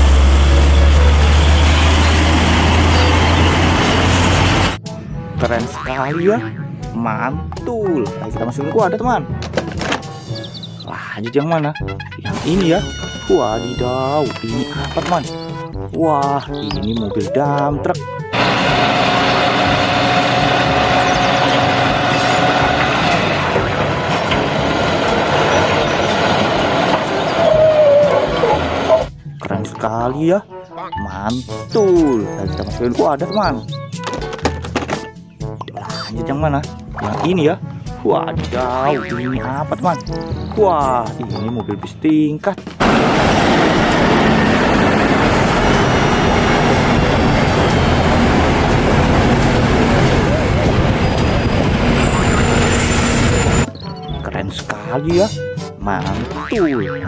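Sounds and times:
diesel truck engine running: 0:00.0 - 0:04.8, 0:18.2 - 0:29.2, 0:42.8 - 0:53.7
traffic rumble: 0:00.0 - 0:04.8, 0:18.3 - 0:29.1, 0:42.7 - 0:53.7
hydraulic hoist whine: 0:18.4 - 0:29.1, 0:42.8 - 0:53.7.

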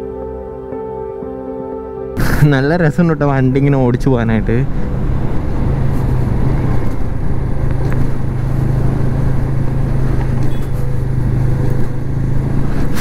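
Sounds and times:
motorcycle engine cruising: 0:03.2 - 0:13.0.

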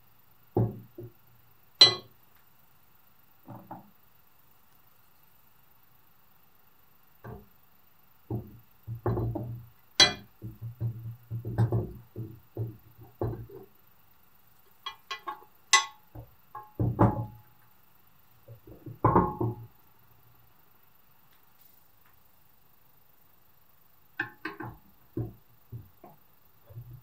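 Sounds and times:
cast-iron parts knocking: 0:00.6 - 0:01.2, 0:01.8 - 0:02.1, 0:03.5 - 0:03.9, 0:07.2 - 0:07.5, 0:08.3 - 0:13.7, 0:14.7 - 0:17.5, 0:18.5 - 0:19.8, 0:24.2 - 0:27.0.

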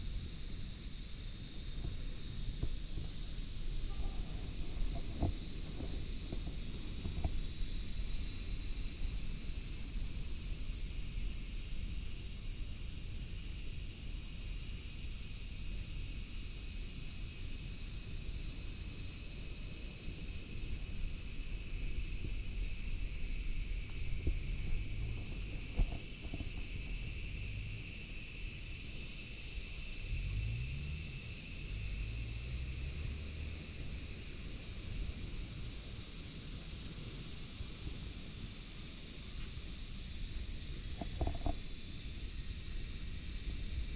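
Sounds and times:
insects chorus: 0:00.0 - 0:43.9
wind rumble on microphone: 0:01.4 - 0:09.3, 0:21.7 - 0:27.7.

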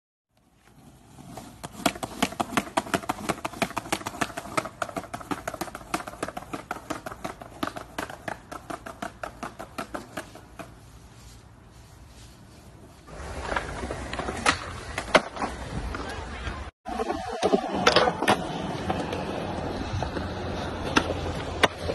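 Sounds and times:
skateboard wheels clacking on paving: 0:00.4 - 0:10.9.

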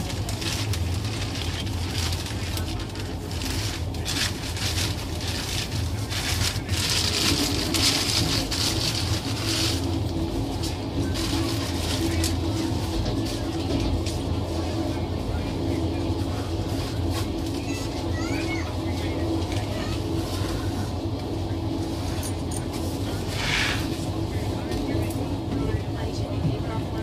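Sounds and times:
wheel-on-rail clatter: 0:00.0 - 0:20.8
steady hum: 0:00.0 - 0:27.0
train rumble: 0:00.0 - 0:27.0.

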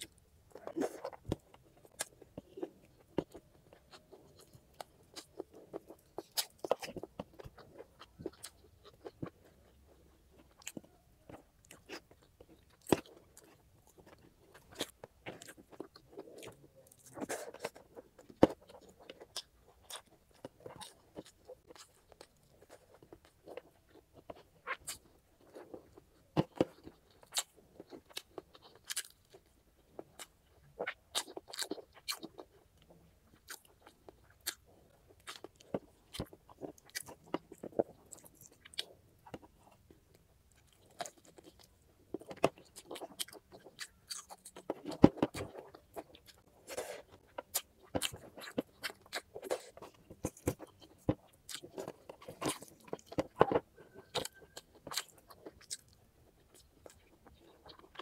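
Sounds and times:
person chewing food: 0:00.0 - 0:58.0.

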